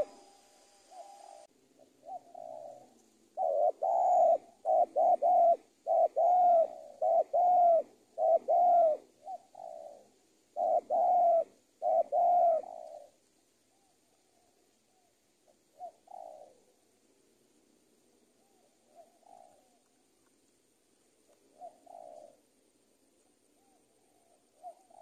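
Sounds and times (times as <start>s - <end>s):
dove cooing: 0.0s - 17.2s, 18.0s - 20.3s, 21.0s - 25.0s.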